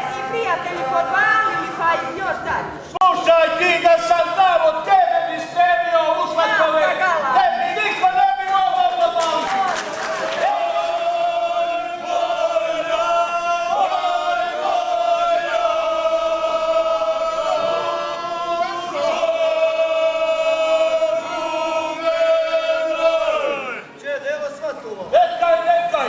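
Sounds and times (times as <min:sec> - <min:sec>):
group singing in harmony: 0:10.2 - 0:24.0.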